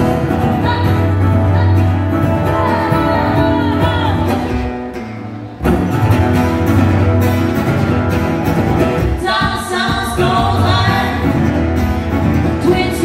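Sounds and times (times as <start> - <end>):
woman singing: 0.0 - 4.9, 9.1 - 11.4, 12.6 - 13.0
country song over pa: 0.0 - 13.0
strummed acoustic guitars: 0.0 - 13.0.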